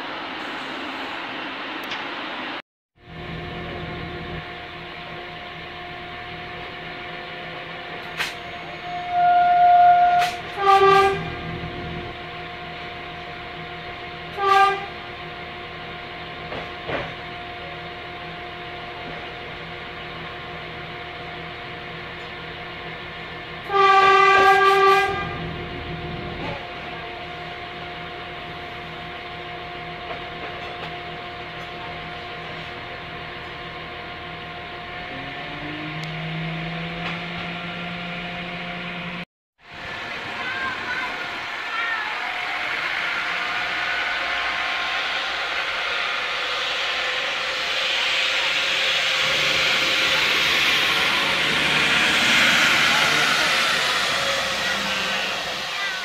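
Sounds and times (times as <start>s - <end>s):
train carriage running noise: 0.0s - 56.0s
train horn blasts: 8.5s - 12.6s, 14.3s - 15.2s, 23.6s - 25.7s, 47.4s - 56.0s.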